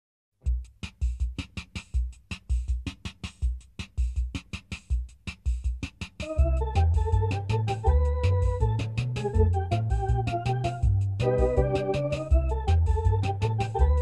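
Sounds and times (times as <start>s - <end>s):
fast electronic drum beat: 0.4s - 14.0s
bass: 6.2s - 14.0s
sustained keyboard chords: 6.2s - 14.0s.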